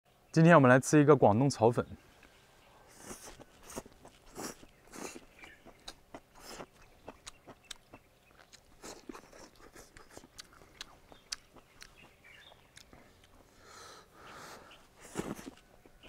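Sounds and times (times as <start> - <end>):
slurping noodles: 2.9 - 5.2, 15.0 - 15.6
wet chewing smacks: 2.9 - 13.7, 15.0 - 16.0.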